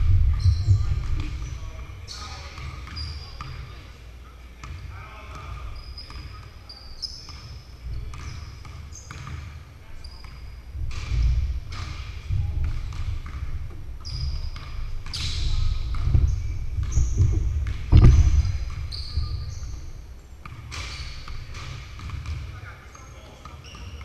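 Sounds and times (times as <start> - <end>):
basketballs bouncing on wood floor: 0.0 - 1.8, 7.2 - 22.6
sneaker squeaks: 0.1 - 4.0, 5.4 - 24.0
loud thud: 15.5 - 19.5.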